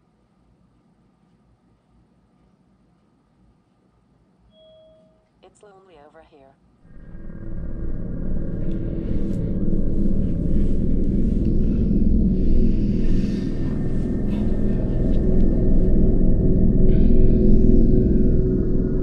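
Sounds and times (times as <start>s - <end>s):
deep rumbling drone: 6.8s - 19.0s.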